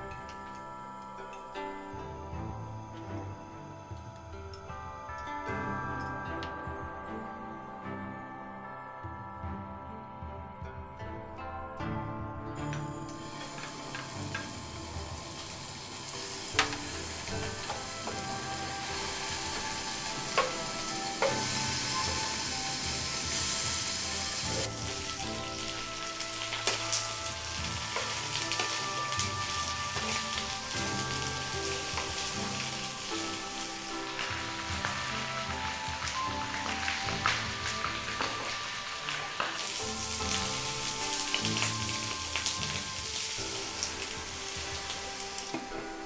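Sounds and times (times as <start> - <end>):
food sizzling in hot oil: 12.6 - 46.0
wooden spatula knocking on pan: 16.6 - 22.3.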